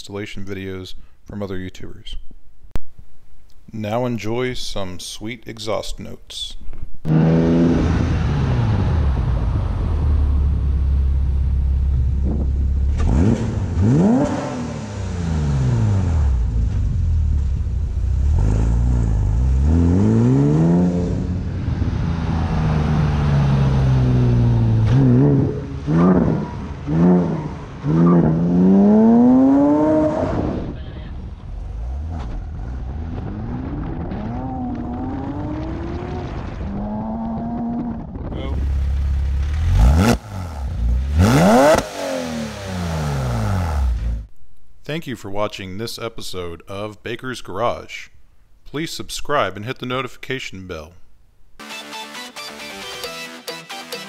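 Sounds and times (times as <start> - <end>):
car engine revving: 7.1 - 44.3.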